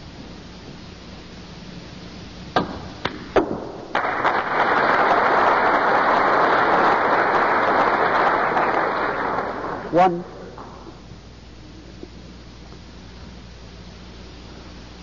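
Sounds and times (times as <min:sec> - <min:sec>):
crowd applause: 0:03.9 - 0:10.9.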